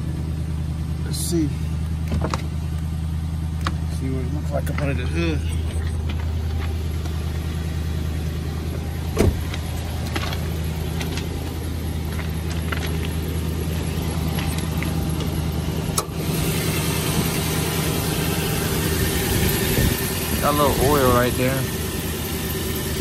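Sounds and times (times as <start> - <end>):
engine idling: 0.0 - 23.0
hood latch clunk: 2.0 - 2.5, 8.7 - 10.4
hood thump: 9.1 - 10.3.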